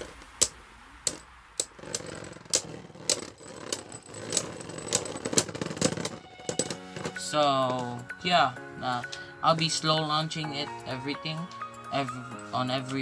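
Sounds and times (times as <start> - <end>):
spinning tops grinding together: 0.0 - 8.0.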